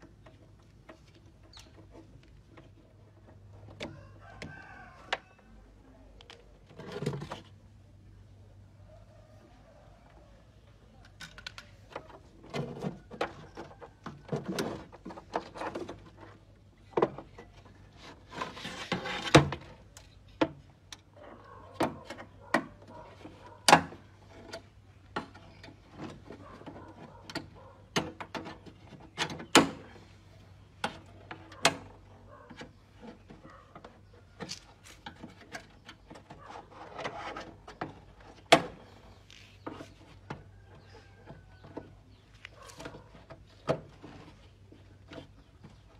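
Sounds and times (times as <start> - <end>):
scraping on plastic: 17.1 - 19.8, 30.8 - 40.9.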